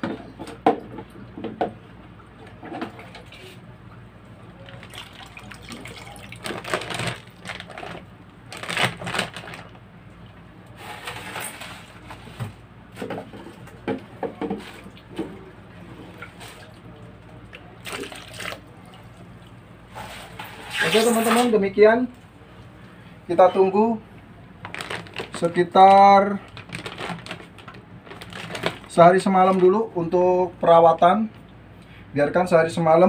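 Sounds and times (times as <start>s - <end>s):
muddy water splashing: 17.8s - 18.8s.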